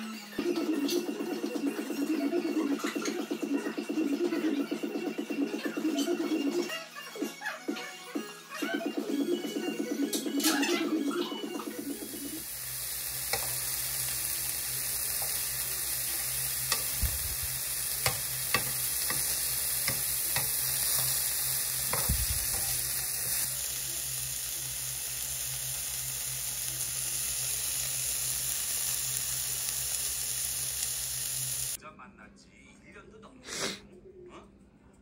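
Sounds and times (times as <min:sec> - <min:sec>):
food frying sizzle: 0:11.4 - 0:31.8.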